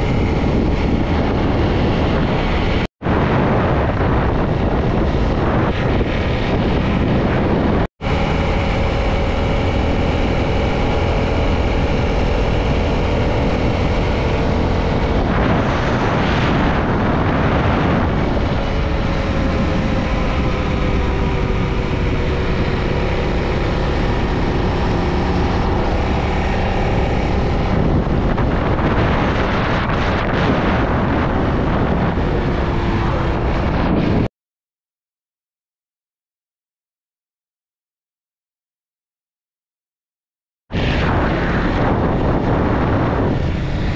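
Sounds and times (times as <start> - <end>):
wind rushing over microphone: 0.0 - 34.3, 40.7 - 43.9
motorcycle engine running: 3.7 - 33.9.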